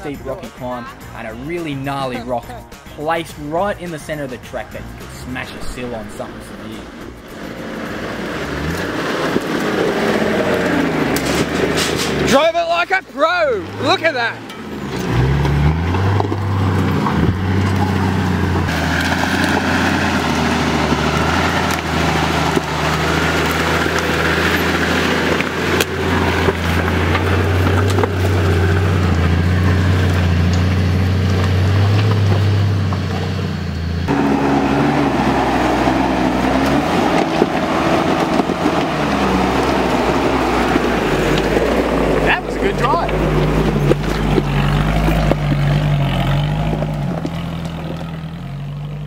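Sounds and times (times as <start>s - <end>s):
engine running under load: 4.4s - 49.0s.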